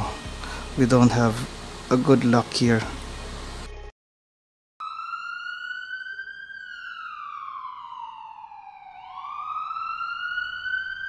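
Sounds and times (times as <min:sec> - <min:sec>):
siren-like wailing tone: 0:04.8 - 0:11.0.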